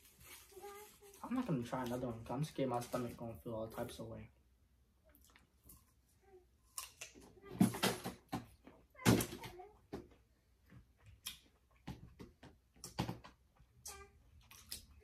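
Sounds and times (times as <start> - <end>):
apple crunching: 6.6 - 7.2, 14.4 - 15.0.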